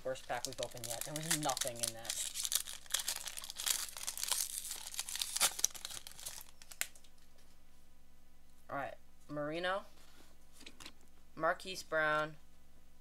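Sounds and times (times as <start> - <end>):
plastic wrapper tearing and crinkling: 0.0 - 7.1.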